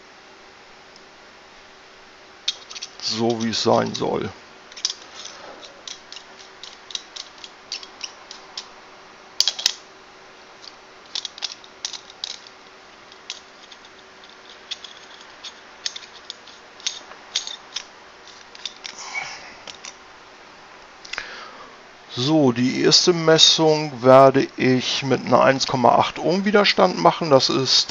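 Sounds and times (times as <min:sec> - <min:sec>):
metal parts clicking and clinking: 0:02.4 - 0:08.8, 0:09.4 - 0:09.9, 0:10.6 - 0:19.0, 0:19.6 - 0:20.0.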